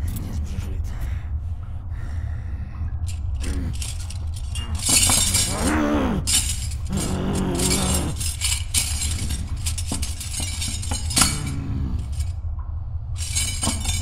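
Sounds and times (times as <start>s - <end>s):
low rumble: 0.0s - 14.0s
clinks of small hard objects: 3.0s - 12.4s, 13.2s - 14.0s.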